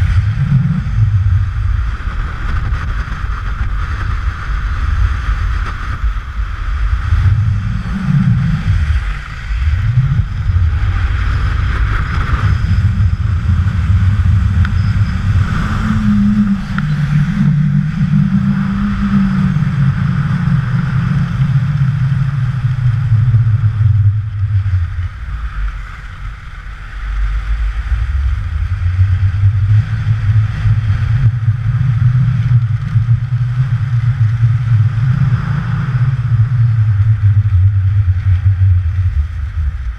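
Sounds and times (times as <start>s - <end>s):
wind rumbling on microphone: 0.0s - 39.9s.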